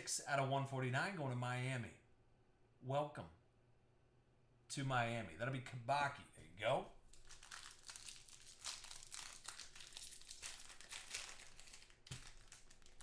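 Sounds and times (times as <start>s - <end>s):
packaging crinkling: 7.1s - 13.0s.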